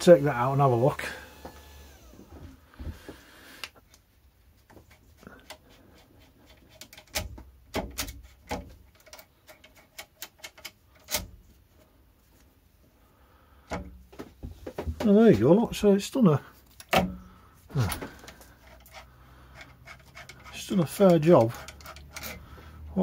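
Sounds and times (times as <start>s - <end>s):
metallic clicks and knocks: 6.4s - 11.4s, 19.6s - 22.4s.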